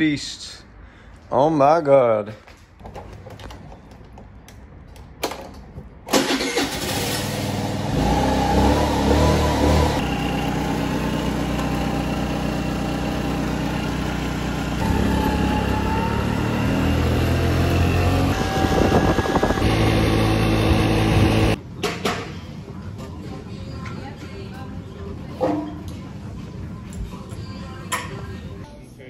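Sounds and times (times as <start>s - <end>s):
scooter engine running: 7.4s - 21.6s.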